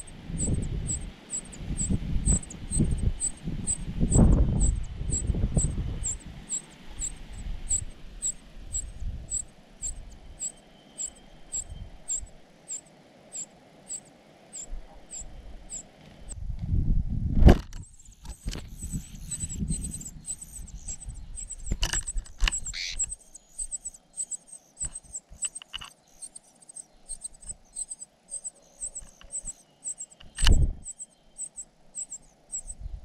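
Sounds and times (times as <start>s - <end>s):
high even chirp: 0.0s - 15.8s, 17.9s - 32.8s
sharp click: 30.2s - 30.6s.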